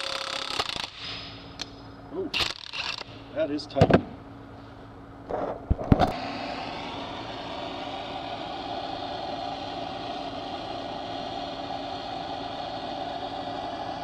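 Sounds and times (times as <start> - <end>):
gas torch roaring: 4.8 - 14.0.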